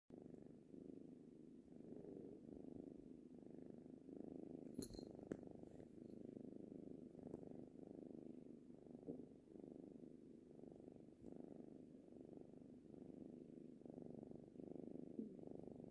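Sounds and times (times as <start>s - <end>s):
kitten purring: 0.1s - 15.9s.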